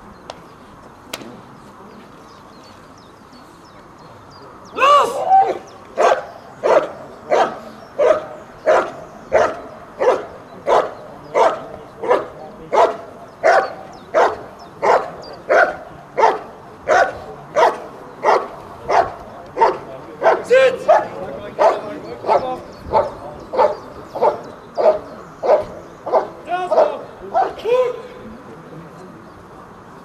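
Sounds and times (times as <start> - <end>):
dog barking: 6.0 - 27.6.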